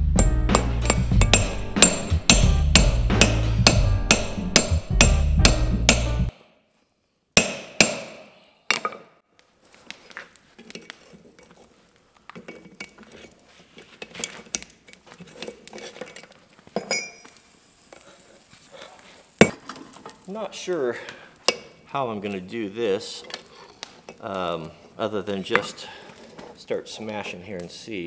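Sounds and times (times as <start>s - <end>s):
hammer blows on punch: 0.0s - 6.3s
metal clinks and knocks on anvil: 0.2s - 6.1s, 16.1s - 17.3s.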